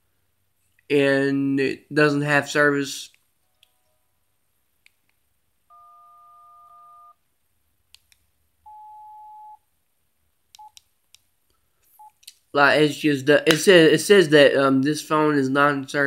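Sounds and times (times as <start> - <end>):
phone beeps: 5.7 - 7.2, 8.7 - 9.6.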